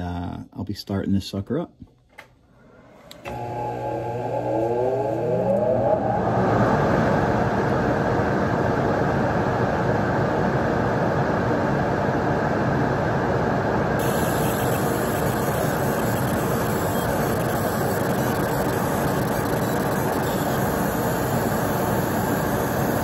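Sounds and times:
extraction fan whine and rush: 2.6 - 23.0
laser marking hiss: 14.0 - 23.0.

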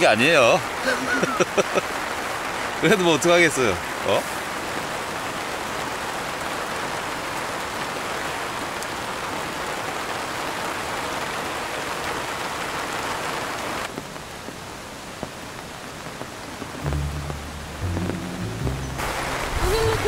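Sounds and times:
heavy rain falling: 0.0 - 20.0
water drops ticking: 16.8 - 20.0.

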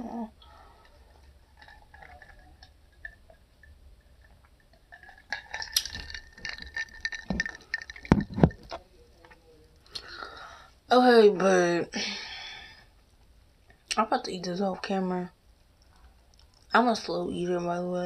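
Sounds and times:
cup and dishes clinking: 5.0 - 8.8.

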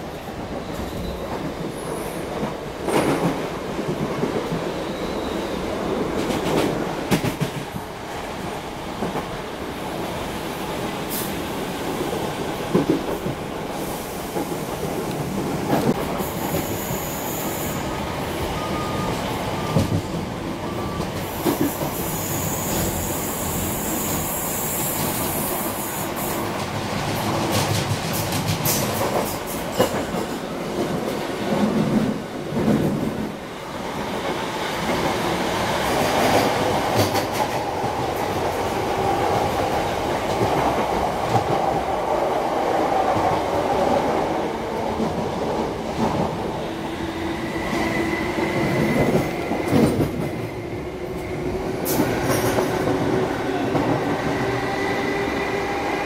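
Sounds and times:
train wheels rumbling on rail: 0.0 - 56.0
rail-joint clicks: 26.5 - 32.0, 51.2 - 54.0.

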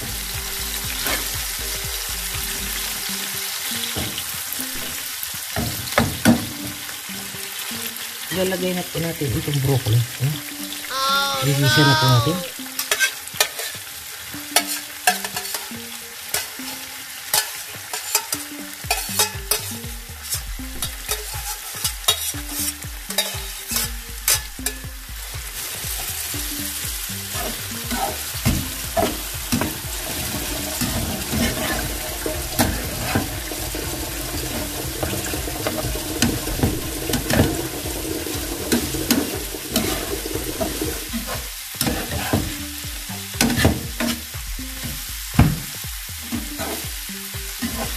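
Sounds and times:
broccoli sizzling in oil: 0.0 - 11.3, 12.0 - 47.9
spatula scraping a pan: 12.8 - 13.9, 14.6 - 24.4, 27.3 - 28.3, 29.0 - 37.7, 38.4 - 42.6, 46.6 - 46.9.

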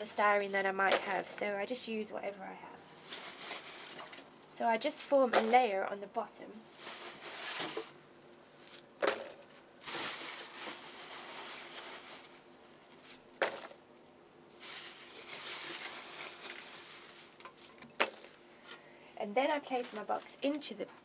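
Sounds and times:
packing chips rustling: 2.9 - 4.3, 6.6 - 13.8, 14.5 - 18.8.

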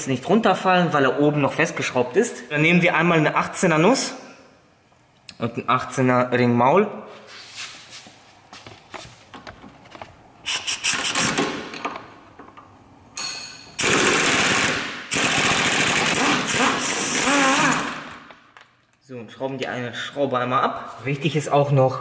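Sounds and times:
pneumatic impact wrench hammering: 10.4 - 12.0, 13.8 - 18.3.

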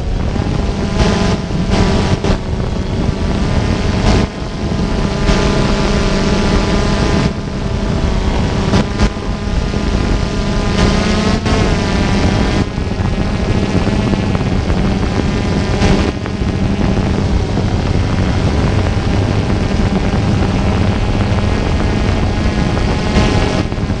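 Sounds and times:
drone propellers whirring: 0.0 - 24.0.

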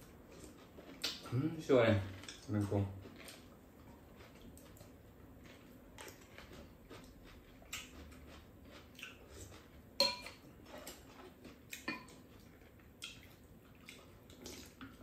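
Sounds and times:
utensils clinking on ceramic bowls: 10.0 - 10.4.

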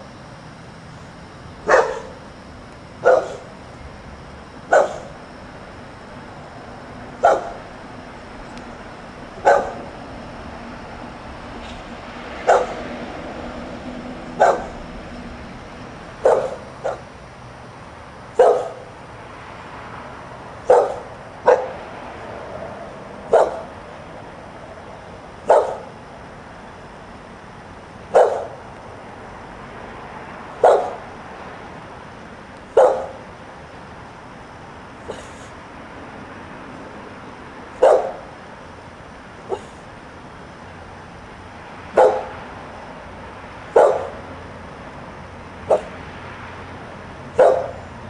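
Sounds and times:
dog barking: 1.6 - 2.2, 3.0 - 3.6, 4.7 - 5.1, 7.2 - 7.7, 9.4 - 9.9, 12.4 - 12.8, 14.4 - 14.8, 16.2 - 17.1, 18.4 - 18.9, 20.6 - 21.8, 23.3 - 23.7, 25.4 - 26.0, 28.1 - 28.6, 30.6 - 31.0, 32.7 - 33.2, 37.7 - 38.3, 39.5 - 39.8, 41.9 - 42.4, 43.7 - 44.2, 45.6 - 46.0, 47.3 - 47.8.

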